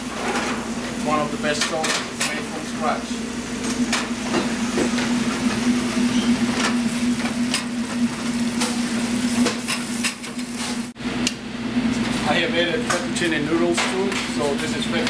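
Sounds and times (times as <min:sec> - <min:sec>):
steady low hum: 0:00.0 - 0:15.0
pan and utensils clanking: 0:01.4 - 0:02.6, 0:03.6 - 0:10.8
onions sizzling in a frying pan: 0:08.3 - 0:11.0.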